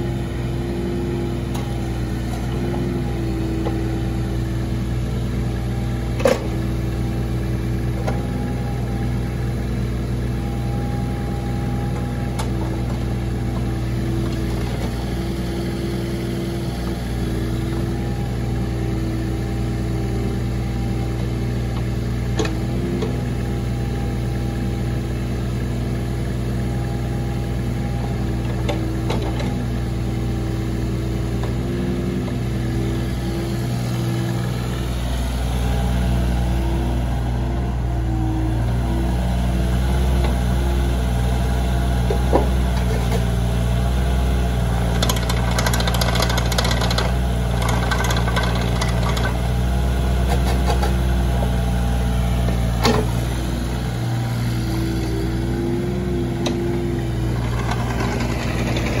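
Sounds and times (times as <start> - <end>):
excavator diesel engine running: 0.0 - 59.0
rattling: 57.2 - 59.0.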